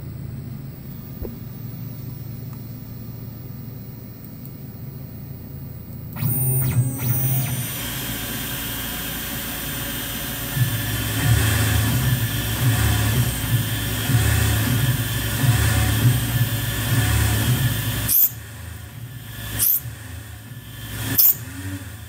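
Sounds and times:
uneven low hum: 0.0s - 7.8s.

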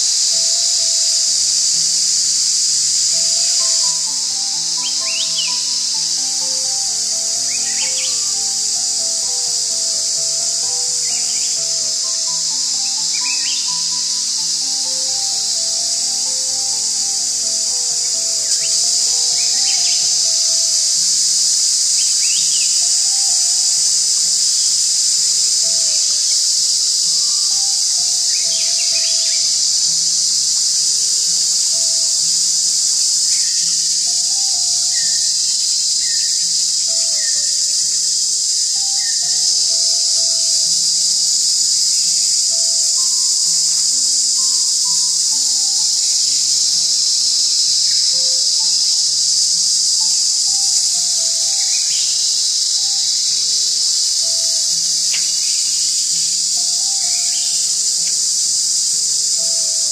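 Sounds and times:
insects chirping chorus: 0.0s - 59.9s.

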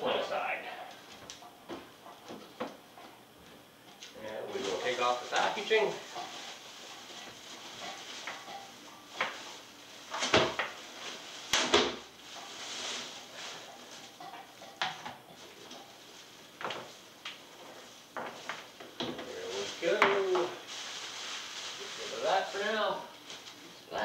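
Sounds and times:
plastic bag rustling: 4.4s - 24.0s
trays clattering on countertop: 10.1s - 10.8s.

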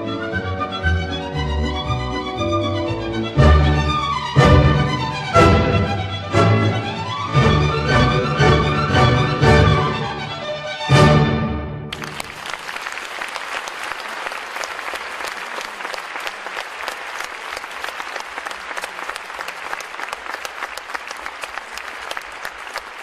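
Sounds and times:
audience applauding: 11.9s - 23.0s.

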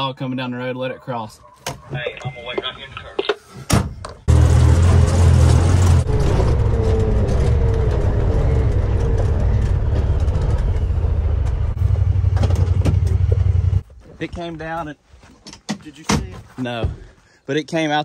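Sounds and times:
vehicle engine and drivetrain rumble: 3.7s - 14.0s.

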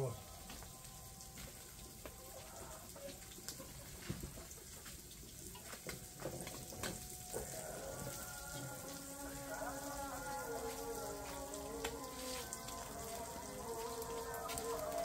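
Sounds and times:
fish sizzling in oil: 0.0s - 15.0s
oil popping: 3.1s - 15.0s.

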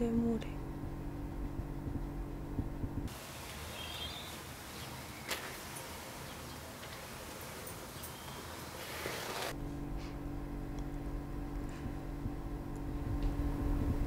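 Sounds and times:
steady low hum: 0.0s - 8.7s, 9.5s - 14.0s
even hiss: 3.1s - 9.6s.

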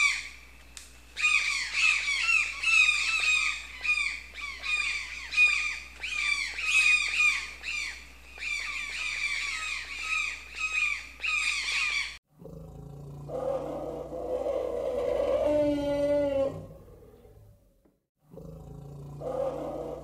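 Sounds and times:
toucan calling: 1.2s - 12.2s.

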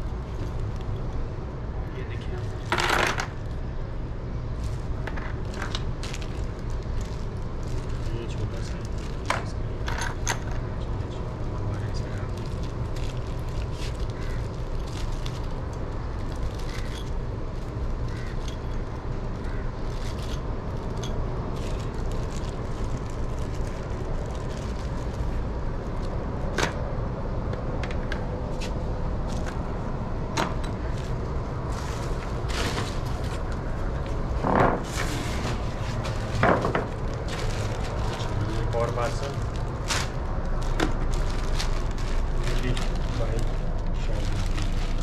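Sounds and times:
steady low rumble: 0.0s - 45.0s
packaging rustling: 19.4s - 26.2s, 30.8s - 45.0s.

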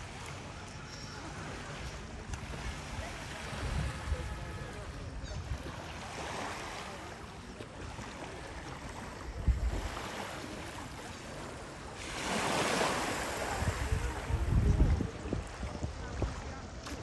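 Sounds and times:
sea waves washing onto beach: 0.0s - 17.0s.

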